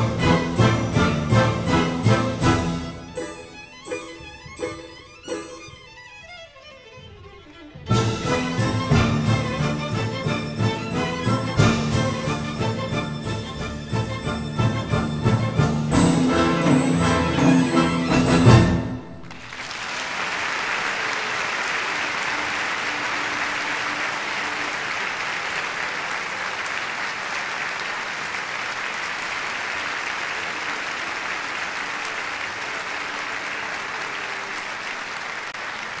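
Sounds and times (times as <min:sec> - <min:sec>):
audience applauding: 0:19.1 - 0:36.0.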